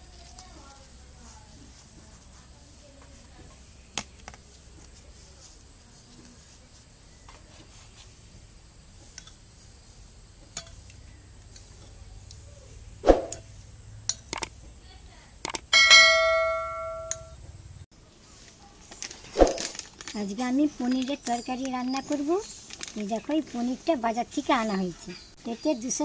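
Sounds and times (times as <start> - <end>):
steel dish ringing like a bell: 15.7 - 17.4.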